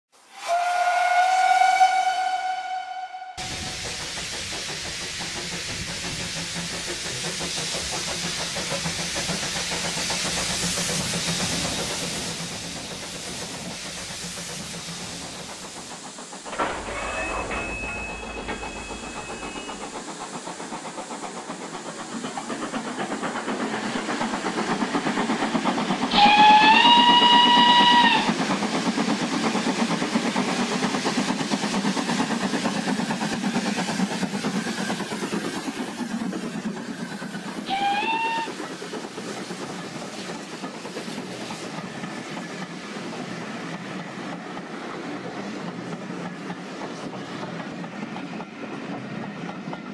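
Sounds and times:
steam whistle: 0.2 - 3.7, 26.1 - 28.3, 37.6 - 38.6
steam locomotive hissing: 0.2 - 49.9.

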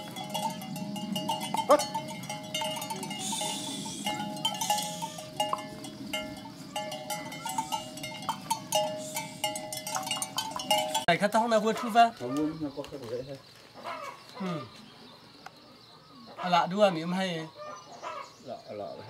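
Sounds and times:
cattle bells clanking: 0.0 - 12.0.

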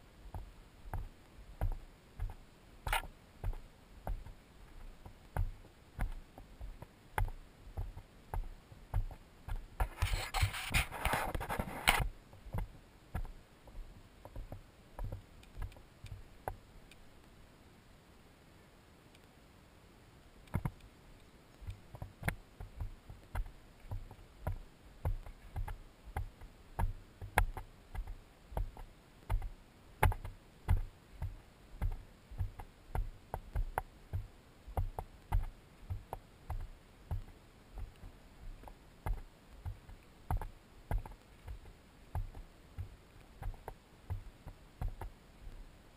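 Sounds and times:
rustling against microphone: 0.0 - 16.3
footsteps on dirt trail: 0.3 - 16.2, 21.6 - 45.1.

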